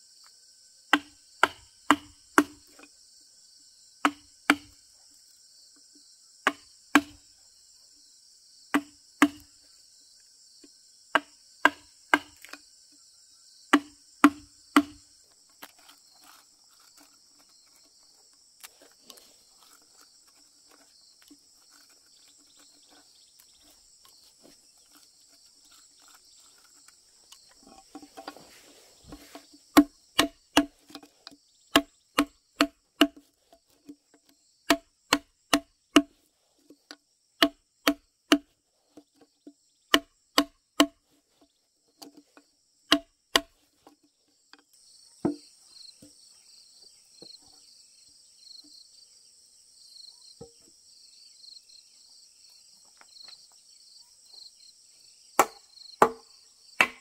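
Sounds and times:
insects chirring: 0:00.0 - 0:57.0
chisel knocking into timber: 0:13.7 - 0:15.0, 0:29.1 - 0:31.1, 0:31.7 - 0:33.2, 0:39.9 - 0:41.0, 0:42.9 - 0:43.5, 0:45.2 - 0:46.1, 0:55.4 - 0:56.2, 0:56.8 - 0:57.0.

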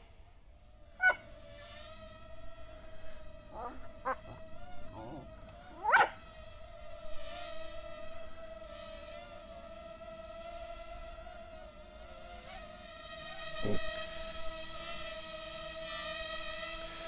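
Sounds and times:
dog yelps: 0:01.0 - 0:01.2, 0:03.6 - 0:04.4, 0:05.0 - 0:06.2
drone propeller motors whining: 0:02.0 - 0:08.3.

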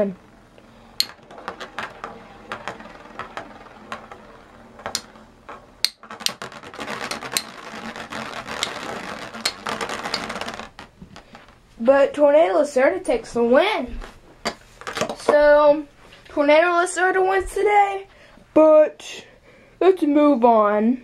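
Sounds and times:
spinning tops clashing: 0:00.0 - 0:11.5.

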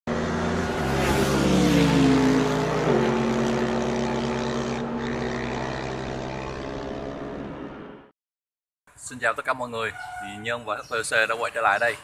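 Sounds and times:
racing engine: 0:00.1 - 0:08.1.

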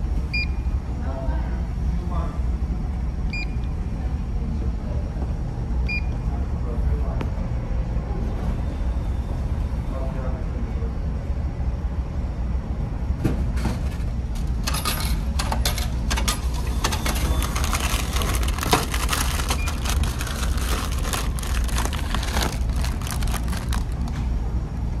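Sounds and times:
low rumble of ferry: 0:00.0 - 0:15.4, 0:17.4 - 0:25.0
plastic wrapping crinkling: 0:17.0 - 0:24.2.

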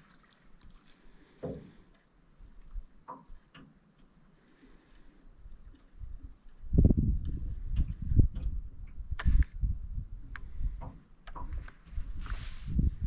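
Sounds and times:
soft knocks and handling: 0:01.4 - 0:04.2.

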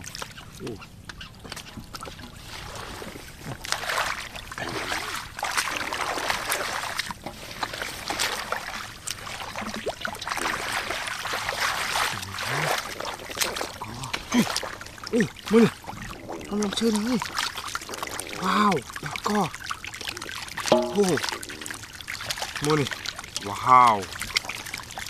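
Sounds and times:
hands splashing in muddy water: 0:02.4 - 0:15.8.

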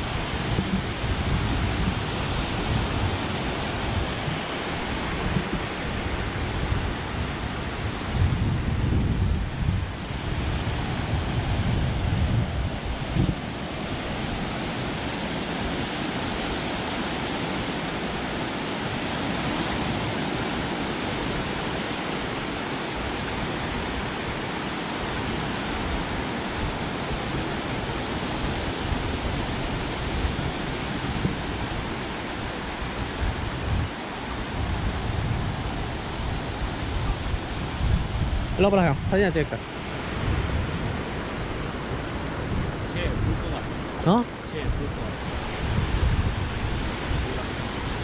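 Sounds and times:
wind buffeting microphone: 0:00.0 - 0:48.0.

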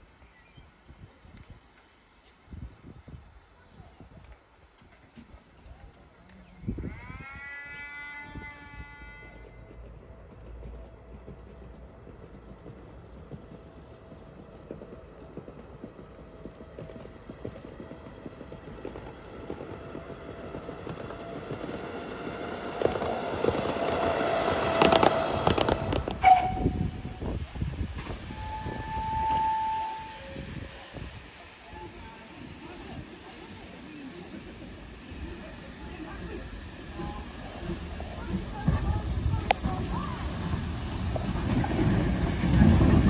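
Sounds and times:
train rumbling and clattering: 0:00.9 - 0:43.0
train horn toot: 0:06.5 - 0:09.8, 0:22.8 - 0:27.2, 0:28.2 - 0:30.5.

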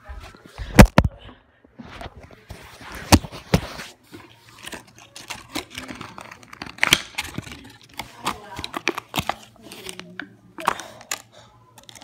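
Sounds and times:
plastic packaging crinkling: 0:03.0 - 0:12.0.

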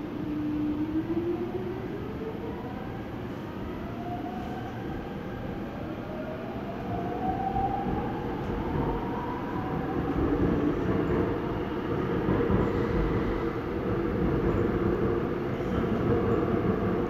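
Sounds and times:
train running noise: 0:07.4 - 0:17.0.

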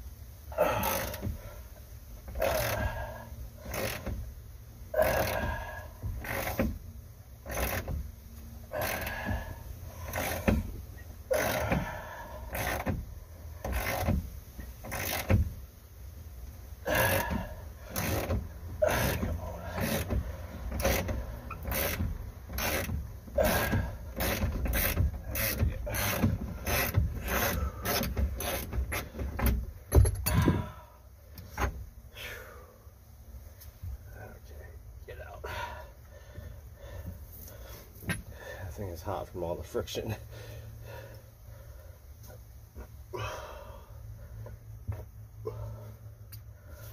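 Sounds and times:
ratchet wrench clicking: 0:02.3 - 0:04.3, 0:06.2 - 0:06.8, 0:07.4 - 0:08.0, 0:10.0 - 0:15.6, 0:16.9 - 0:29.2.

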